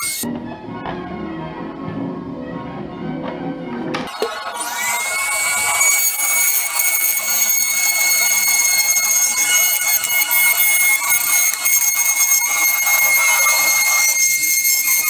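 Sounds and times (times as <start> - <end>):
rotary tool grinding plastic: 4.1 - 15.0.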